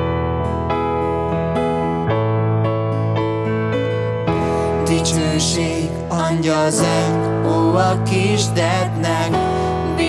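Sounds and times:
digital piano chords: 0:00.0 - 0:10.0.

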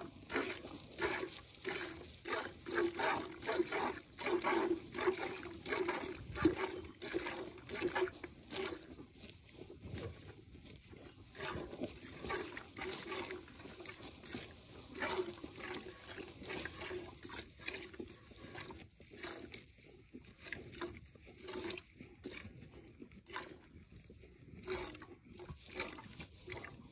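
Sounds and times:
milk squirting into metal pail: 0:00.0 - 0:09.0, 0:11.3 - 0:19.6.

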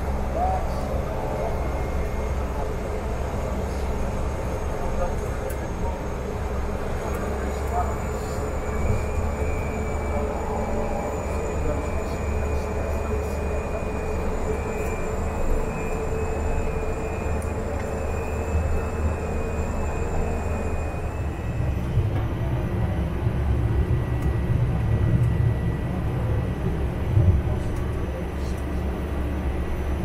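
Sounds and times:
faint high whine: 0:00.0 - 0:22.0
turboprop engine droning: 0:00.0 - 0:30.0.

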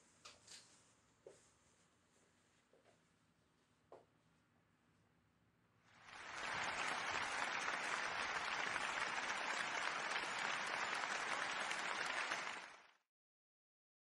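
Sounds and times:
applause: 0:06.0 - 0:13.1.

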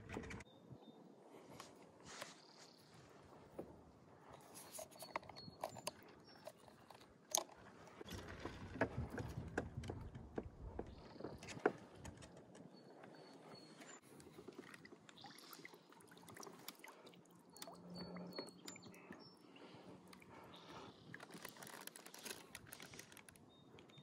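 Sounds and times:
clicks and knocks of handling: 0:04.3 - 0:14.8, 0:20.1 - 0:24.0.

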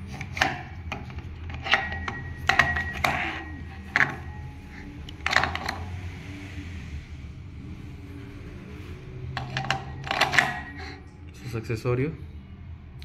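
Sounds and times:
metal parts clacking and knocking: 0:00.0 - 0:06.0, 0:09.3 - 0:11.1.

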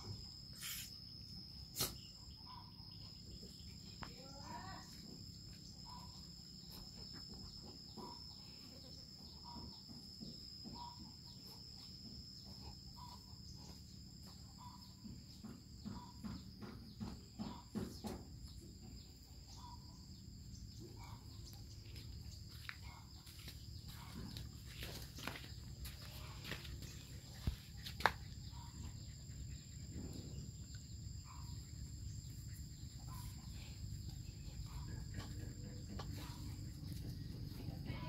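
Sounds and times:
high insect drone: 0:19.4 - 0:38.0
animals moving on dirt: 0:21.0 - 0:29.1, 0:31.9 - 0:38.0.

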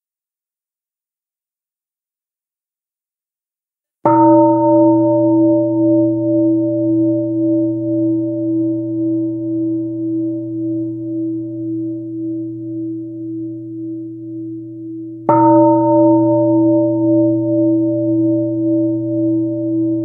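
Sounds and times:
singing bowl ringing: 0:04.1 - 0:20.0
singing bowl struck: 0:04.1 - 0:20.0.

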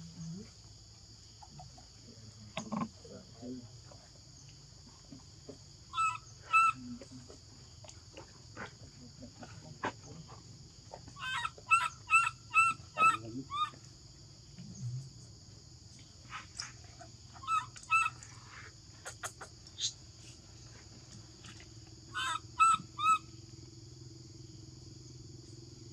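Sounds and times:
baby monkey distress calls: 0:05.9 - 0:06.8, 0:11.2 - 0:13.8, 0:17.4 - 0:19.9, 0:22.1 - 0:23.4.

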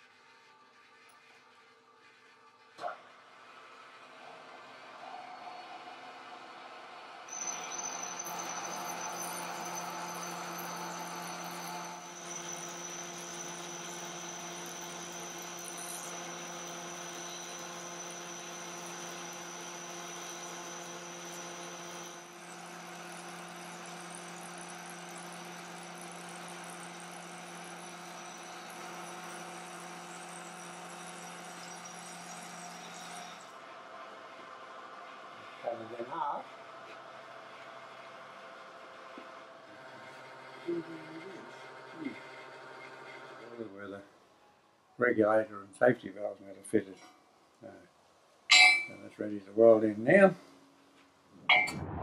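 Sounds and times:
metal lathe humming with whine: 0:03.4 - 0:36.6, 0:39.7 - 0:43.6.

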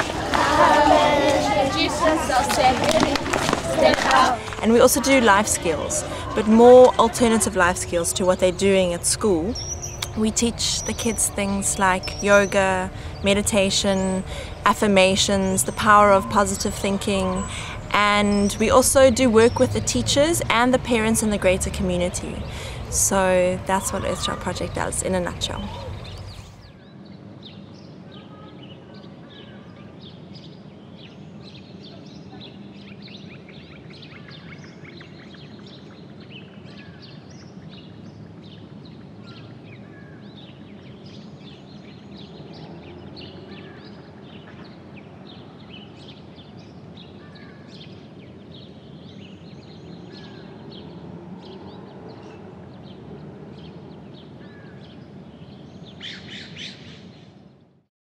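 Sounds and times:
low background din: 0:00.0 - 0:26.7
small birds chirping: 0:08.8 - 0:57.4.

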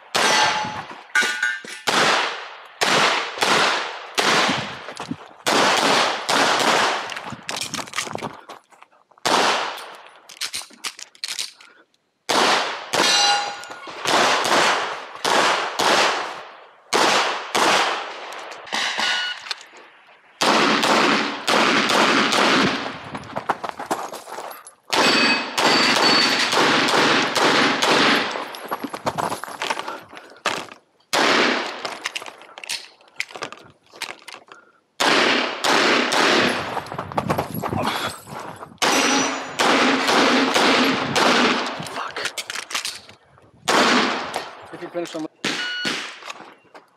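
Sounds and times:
pistol shots with echo: 0:00.0 - 0:04.7, 0:05.4 - 0:07.1, 0:09.2 - 0:09.8, 0:12.3 - 0:19.4, 0:20.4 - 0:22.9, 0:24.9 - 0:28.5, 0:31.1 - 0:31.8, 0:35.0 - 0:36.6, 0:38.8 - 0:41.8, 0:43.7 - 0:44.7, 0:45.4 - 0:46.3.

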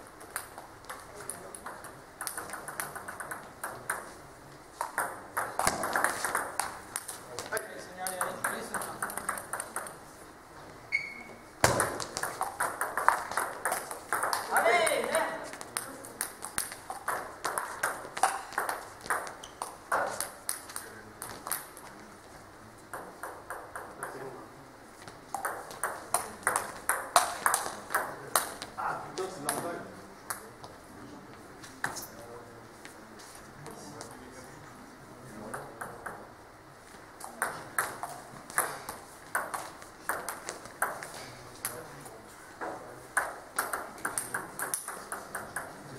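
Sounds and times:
table tennis balls clicking: 0:00.2 - 0:04.2, 0:04.8 - 0:10.1, 0:11.6 - 0:22.0, 0:22.9 - 0:24.4, 0:25.0 - 0:30.8, 0:37.2 - 0:41.9, 0:42.6 - 0:45.9.

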